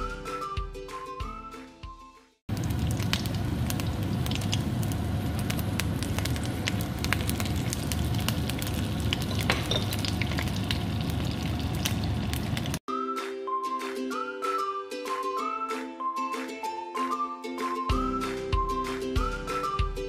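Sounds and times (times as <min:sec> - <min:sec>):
chillies sizzling in hot oil: 0:02.5 - 0:12.8
oil spitting and popping: 0:02.5 - 0:12.8.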